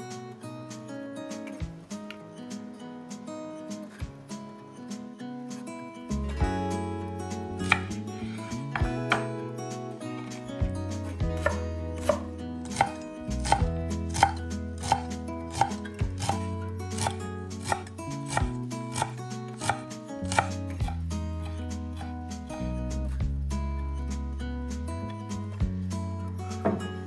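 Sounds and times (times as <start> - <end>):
background music: 0.0 - 27.0
knife chopping on wooden board: 7.6 - 8.0, 8.7 - 9.4, 11.2 - 21.0, 26.6 - 26.9.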